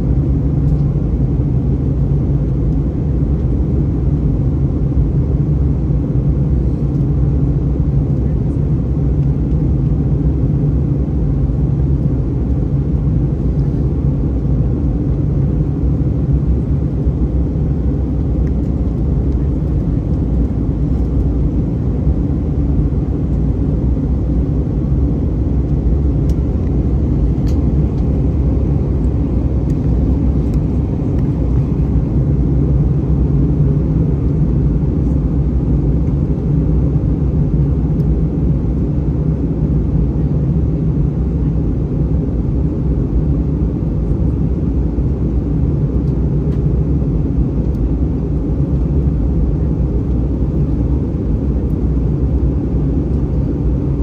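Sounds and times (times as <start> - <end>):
airplane cabin rumble: 0.0 - 54.0.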